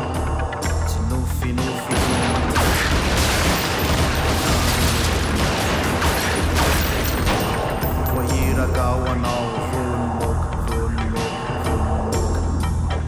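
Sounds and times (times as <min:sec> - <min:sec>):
music with steady bass line: 0:00.0 - 0:03.1, 0:08.0 - 0:13.0
rapid pistol gunfire: 0:02.0 - 0:08.0.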